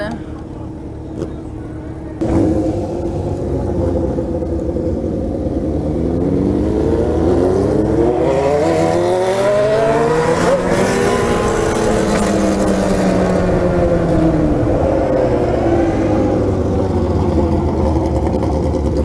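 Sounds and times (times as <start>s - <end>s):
motorcycle engine accelerating: 0.6s - 19.0s.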